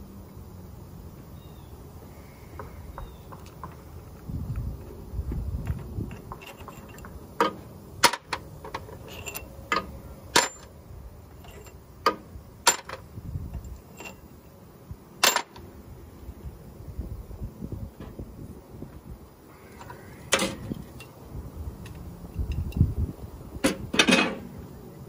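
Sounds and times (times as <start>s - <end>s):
sharp metal clinks: 8.9s - 10.7s, 11.4s - 11.8s, 13.6s - 14.3s.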